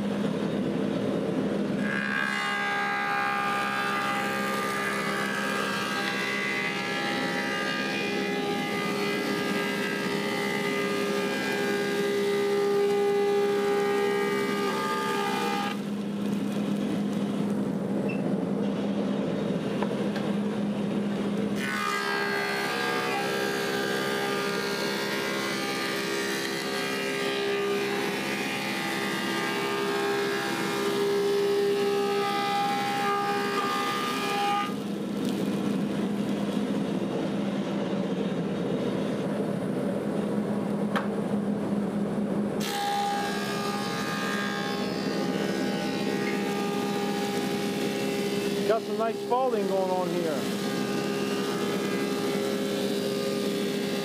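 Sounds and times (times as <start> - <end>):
planer cutterhead cutting board: 1.8 - 16.8.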